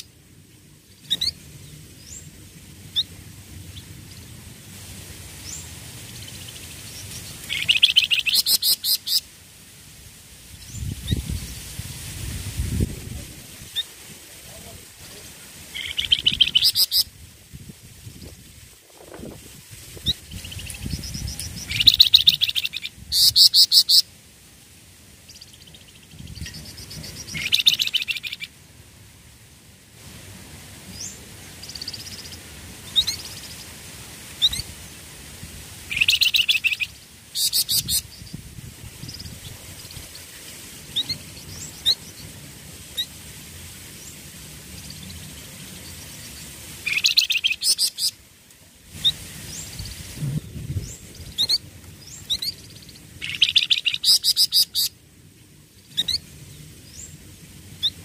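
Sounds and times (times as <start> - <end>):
thin bird chirps: 0.9 - 2.3, 5.4 - 9.2, 15.8 - 17.0, 25.3 - 28.5, 35.9 - 38.4, 44.8 - 48.1, 50.7 - 54.9
bird chattering: 7.4 - 9.3, 15.7 - 17.1, 26.4 - 28.5, 35.9 - 38.1, 46.8 - 48.1, 53.2 - 54.9.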